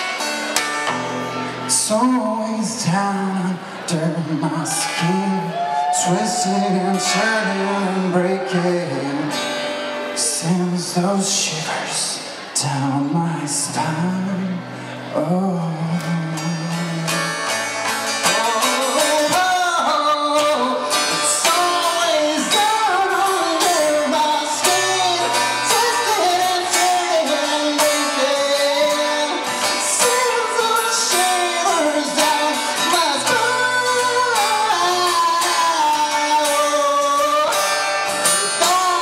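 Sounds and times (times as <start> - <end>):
acoustic guitar strumming: 0.0 - 39.0
man singing into a microphone: 1.3 - 39.0.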